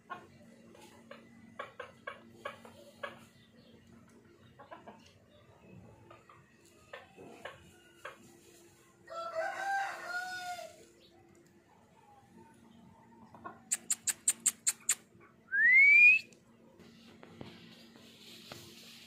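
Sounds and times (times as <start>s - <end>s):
bird chirps and clicks: 13.7s - 15.1s.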